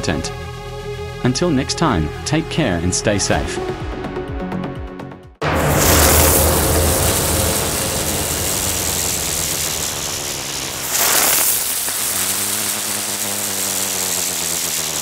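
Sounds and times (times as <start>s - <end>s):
low rumbling drone: 0.0s - 4.0s, 5.4s - 15.0s
whoosh: 5.4s - 13.5s.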